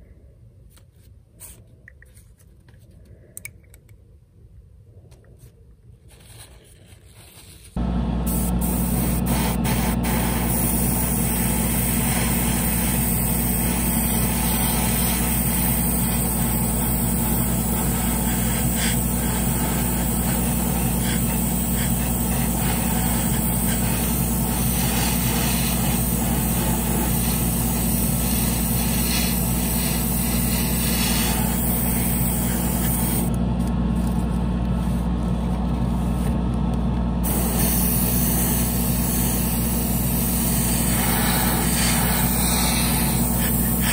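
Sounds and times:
exhaust fan hum: 0:07.6 - 0:43.9
airbrush spraying hiss: 0:08.3 - 0:33.3, 0:37.2 - 0:43.9.

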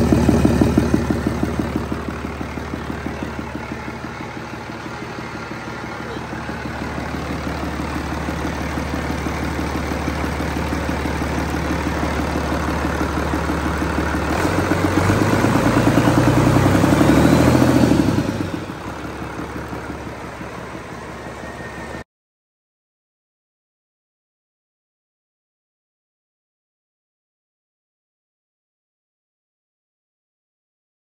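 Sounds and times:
diesel engine idling and revving: 0:00.0 - 0:22.0.

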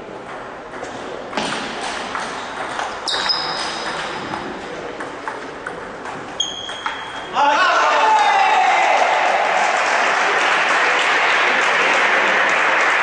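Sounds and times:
table tennis ball clicking: 0:02.0 - 0:07.3.

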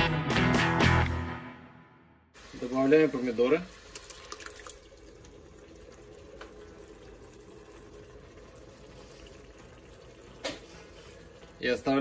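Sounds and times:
onions sizzling in a pot: 0:02.4 - 0:07.4.

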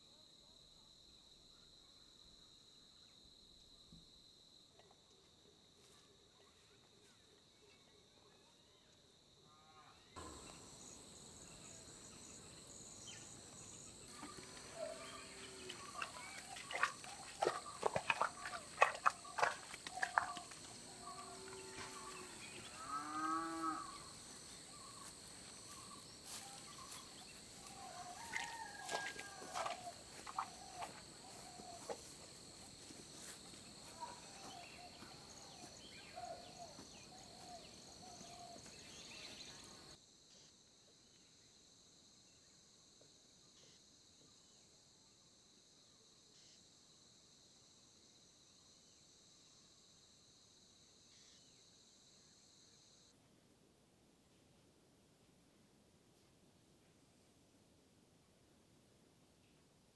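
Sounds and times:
high insect drone: 0:09.5 - 0:44.6.

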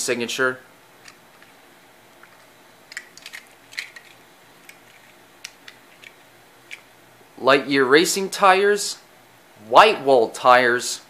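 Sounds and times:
low hiss: 0:00.0 - 0:11.0
toy cars clicking in hand: 0:02.9 - 0:06.8.

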